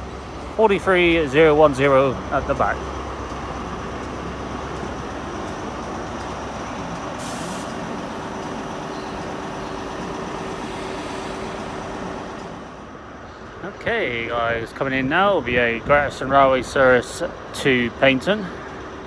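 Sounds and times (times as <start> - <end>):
diesel engine running: 0.0 - 19.0
hiss of air: 7.2 - 8.0, 10.5 - 12.7.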